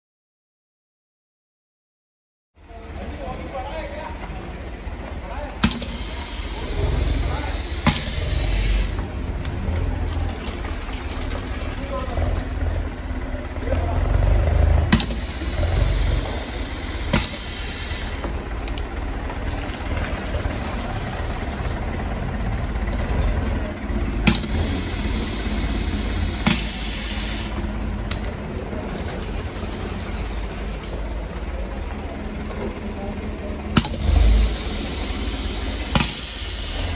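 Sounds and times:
steady low machine hum: 2.6s - 36.9s
pneumatic cylinder clicks: 5.6s - 6.1s, 24.2s - 24.7s, 33.8s - 34.4s, 35.8s - 36.9s
air hissing: 5.6s - 9.1s, 14.9s - 18.5s, 24.3s - 27.7s, 33.8s - 36.9s.

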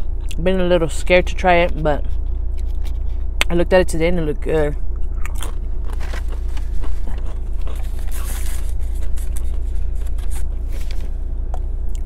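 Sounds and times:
steady low hum: 0.0s - 12.0s
chewing: 5.0s - 10.6s
foil wrapper crinkling: 5.9s - 11.1s.

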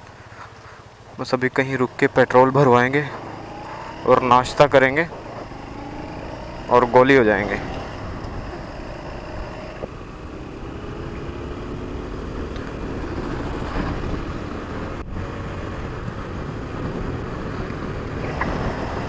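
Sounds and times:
motorcycle engine running: 0.9s - 19.0s
wind noise on microphone: 11.7s - 19.0s.

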